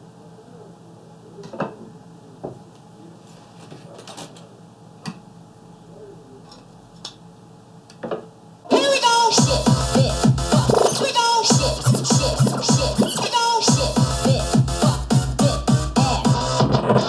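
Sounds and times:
loud scratched music: 0:08.7 - 0:17.0.

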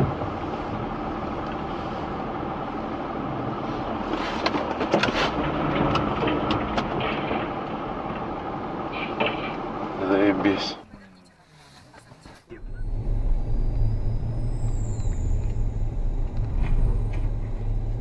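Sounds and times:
car engine and road noise: 0:00.0 - 0:18.0
sharp clicks and knocks: 0:04.4 - 0:08.4.

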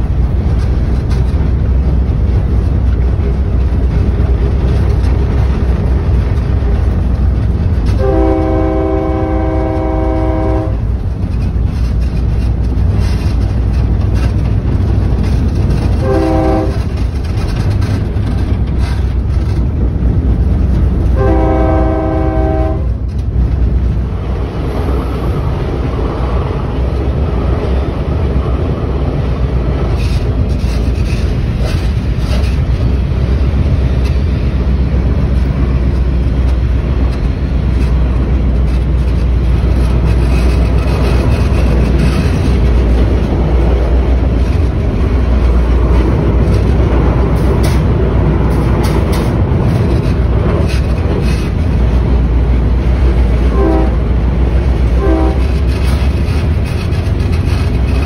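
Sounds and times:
train rumbling on rails: 0:00.0 - 0:58.0
train horn blasts: 0:07.8 - 0:10.9, 0:16.0 - 0:17.0, 0:21.1 - 0:23.1, 0:53.5 - 0:54.1, 0:54.9 - 0:55.7.

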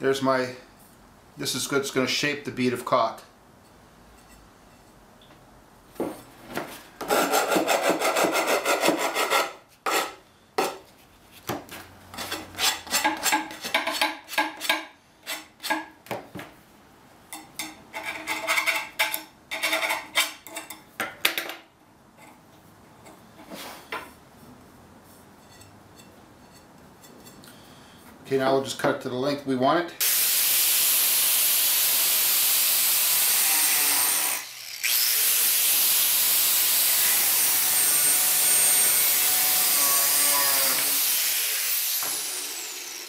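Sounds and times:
sanding copper pipe: 0:07.1 - 0:09.6.

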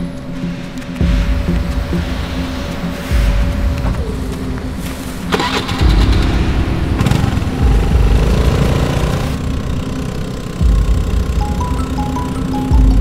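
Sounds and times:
scooter engine starting and running: 0:05.3 - 0:13.0.

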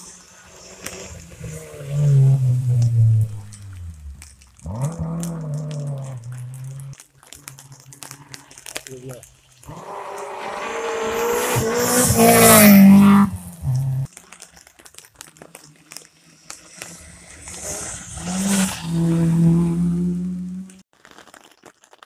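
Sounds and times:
rally car passing at high revs: 0:00.3 - 0:03.8, 0:09.7 - 0:14.1, 0:16.7 - 0:20.8
rally car accelerating hard: 0:09.7 - 0:14.1, 0:16.9 - 0:20.8.

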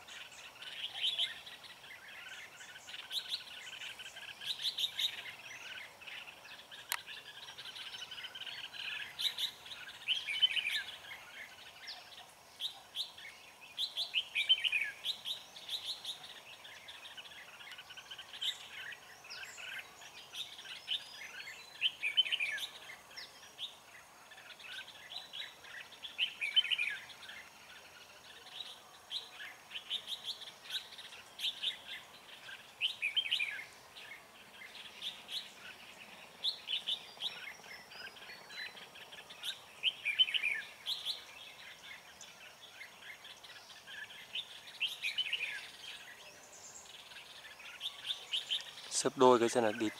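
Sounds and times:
birds chirping: 0:00.0 - 0:49.9.

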